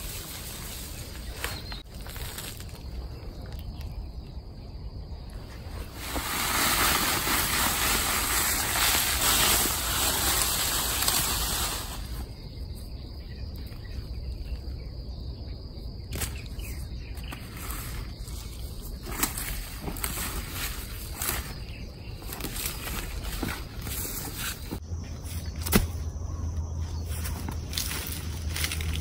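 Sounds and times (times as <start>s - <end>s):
hand hoe chopping into soil: 25.4s - 26.0s.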